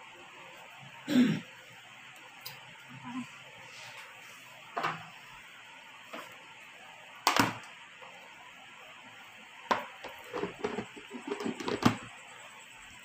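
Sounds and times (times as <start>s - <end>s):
plastic lid knocking and clacking: 9.7s - 12.1s.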